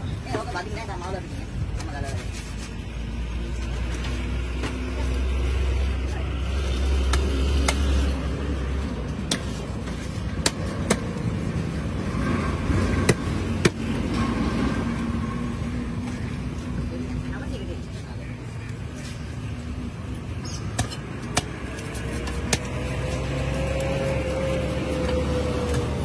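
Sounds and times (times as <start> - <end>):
cleaver chopping fish on wood: 20.7 - 21.8, 22.4 - 22.8.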